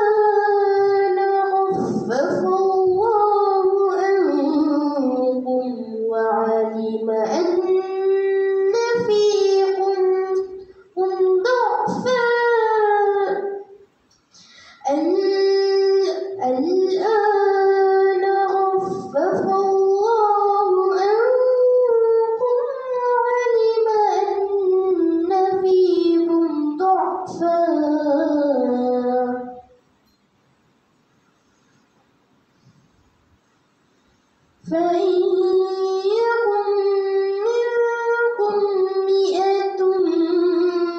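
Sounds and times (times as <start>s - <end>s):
girl chanting melodic recitation: 0.0s - 29.8s, 34.6s - 40.9s.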